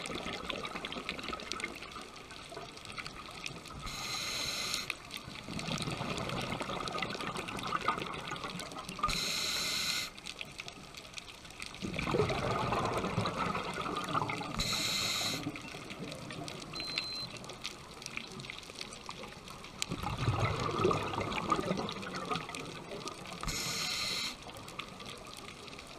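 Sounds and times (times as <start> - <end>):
exhaled air bubbling: 0.0 - 10.2, 11.7 - 17.3, 19.4 - 25.4
regulator hissing inhalations: 3.8 - 5.0, 9.1 - 10.2, 14.6 - 15.5, 23.4 - 24.4.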